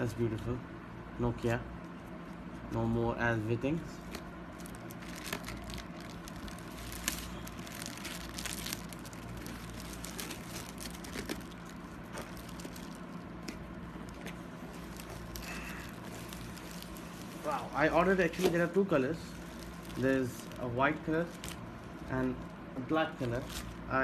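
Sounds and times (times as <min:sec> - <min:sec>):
steady low hum: 0:00.0 - 0:24.0
cardboard rustling and scraping: 0:04.0 - 0:21.6, 0:23.0 - 0:23.8
plastic film crinkling: 0:04.0 - 0:24.0.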